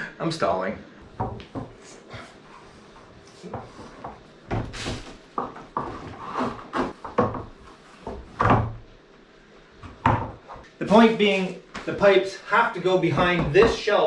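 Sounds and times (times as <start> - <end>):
objects knocking and clattering: 6.7 - 8.8.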